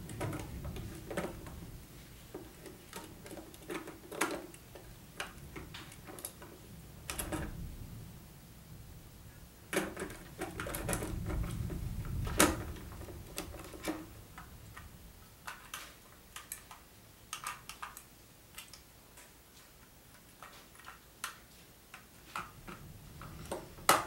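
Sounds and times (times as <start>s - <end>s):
plastic bricks clicking: 2.3s - 7.6s, 9.7s - 18.8s.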